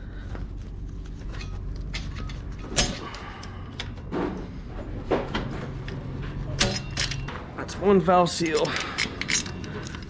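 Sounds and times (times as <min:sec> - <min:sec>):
steady low hum: 0:00.0 - 0:10.0
pliers clicking and scraping metal: 0:08.4 - 0:10.0.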